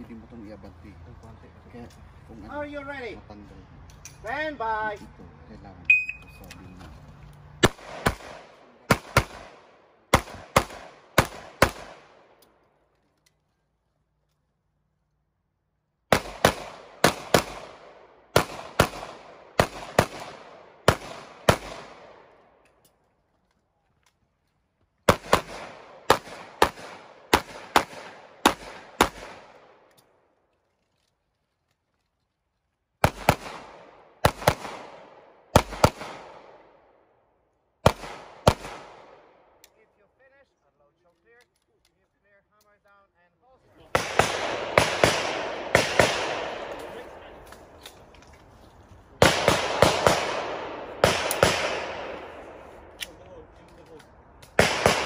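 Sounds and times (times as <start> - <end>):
pistol shots: 7.6 - 12.4, 16.1 - 22.3, 25.1 - 29.9, 33.0 - 36.8, 37.8 - 39.5, 43.9 - 47.8, 49.2 - 52.9, 54.5 - 55.0.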